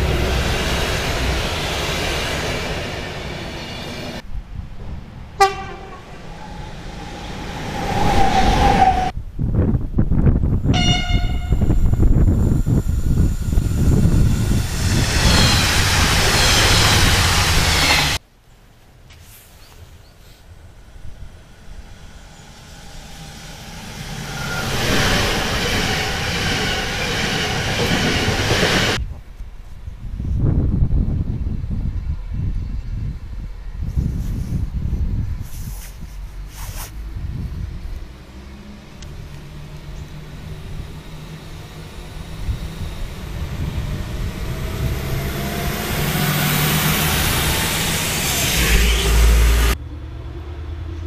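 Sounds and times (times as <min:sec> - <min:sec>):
passing train rumble and clatter: 0:00.0 - 0:18.2, 0:20.2 - 0:51.0
electric locomotive horn: 0:05.4 - 0:06.3, 0:10.7 - 0:12.3.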